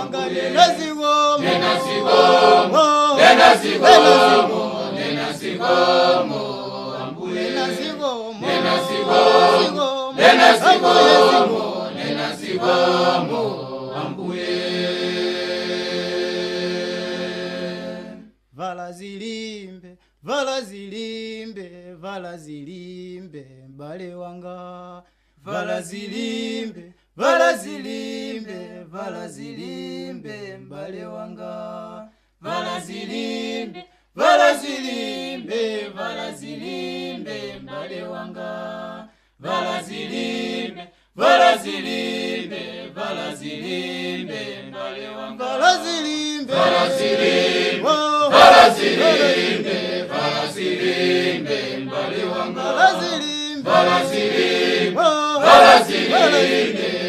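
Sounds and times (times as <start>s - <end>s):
unaccompanied hymn singing: 0.0s - 19.5s, 23.8s - 57.0s.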